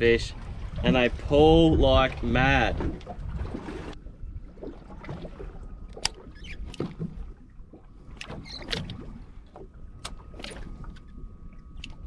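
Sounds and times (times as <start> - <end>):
wind and water rumble: 0.0 - 12.0
knocks and clatters on boat: 2.0 - 11.2.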